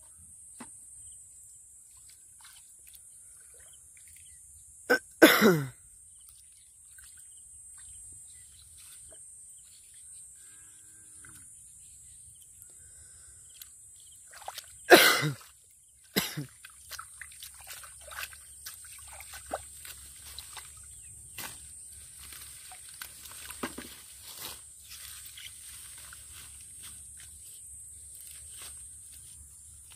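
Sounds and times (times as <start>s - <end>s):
hands squelching in mud: 14.3s - 15.5s, 16.4s - 21.5s.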